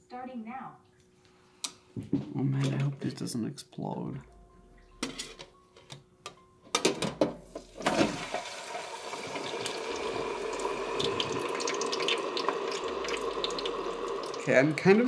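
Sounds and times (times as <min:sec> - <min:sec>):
fries clattering into fryer: 0:06.8 - 0:12.6
fries sizzling in hot fat: 0:07.6 - 0:15.0.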